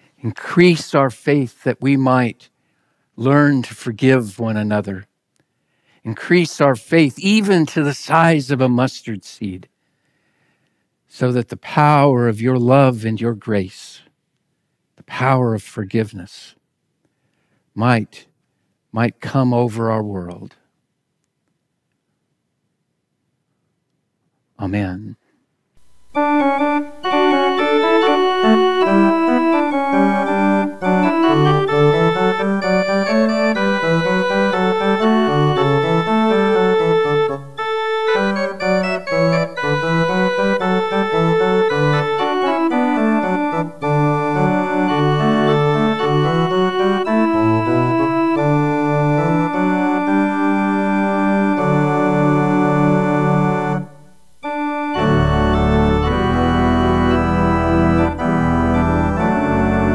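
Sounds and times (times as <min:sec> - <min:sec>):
church organ playing chords: 0:25.9 - 0:59.9.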